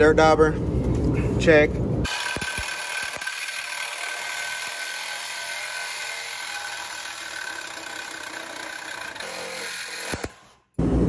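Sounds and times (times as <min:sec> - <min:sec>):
reciprocating saw cutting metal pipe: 0:02.1 - 0:10.7.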